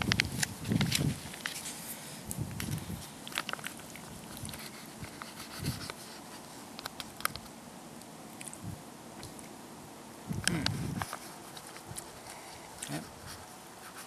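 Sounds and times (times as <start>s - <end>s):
foil pouch crinkling: 0.0s - 7.5s, 10.6s - 14.0s.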